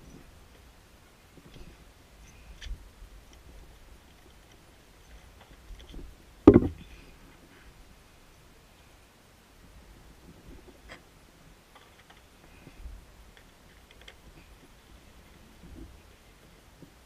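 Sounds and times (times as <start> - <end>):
loud thump: 6.5 - 6.8
light clicks and handling noises: 11.7 - 17.0.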